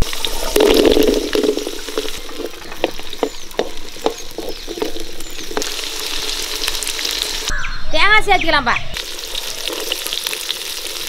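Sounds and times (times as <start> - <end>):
oil crackling and popping: 0.0 - 7.5, 9.0 - 11.0
shallots frying in hot oil: 0.0 - 7.5, 9.0 - 11.0.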